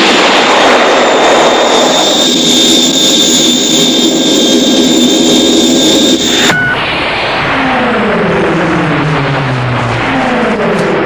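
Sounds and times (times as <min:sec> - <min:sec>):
loud engine roar with high whine: 0:00.0 - 0:11.0
low engine hum: 0:05.6 - 0:11.0.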